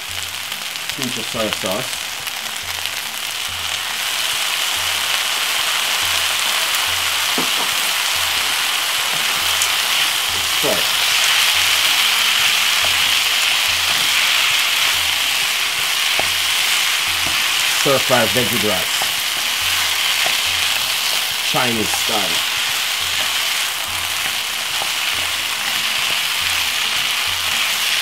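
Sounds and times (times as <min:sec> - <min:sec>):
rice sizzling in frying pan: 0:00.0 - 0:28.0
wooden spoon stirring: 0:09.7 - 0:28.0.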